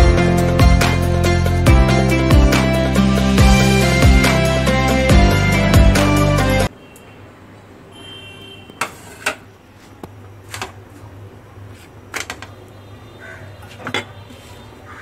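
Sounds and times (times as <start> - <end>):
kitchen knocks and clinks: 13.7 - 14.2.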